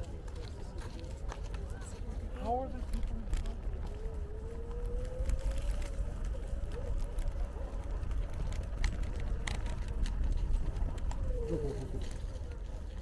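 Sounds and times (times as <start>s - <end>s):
wind and rolling rumble: 0.0s - 13.0s
scooter whine: 3.6s - 12.8s.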